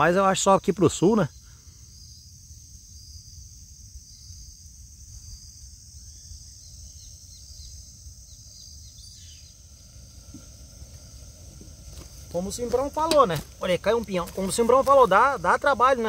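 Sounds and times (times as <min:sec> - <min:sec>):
insects chorus: 0:00.0 - 0:16.0
bird calling: 0:05.2 - 0:16.0.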